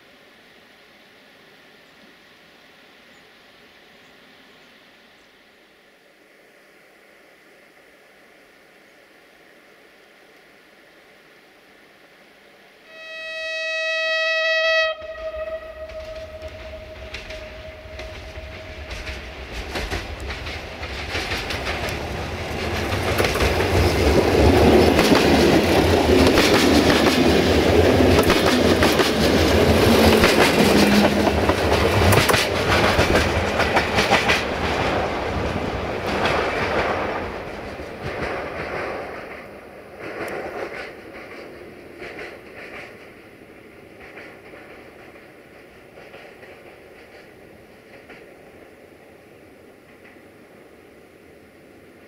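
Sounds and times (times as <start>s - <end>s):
train passing: 0.0s - 52.0s.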